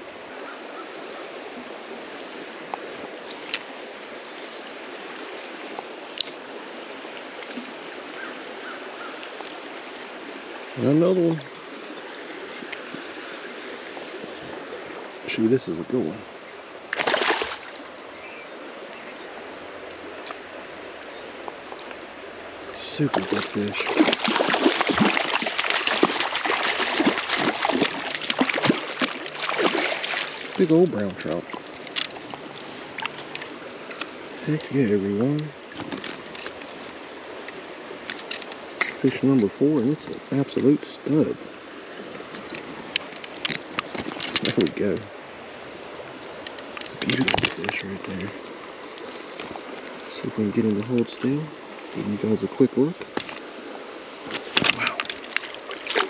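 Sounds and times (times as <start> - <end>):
creek water flowing: 0.0 - 56.0
fish splashing at surface: 17.0 - 17.8, 23.1 - 30.6.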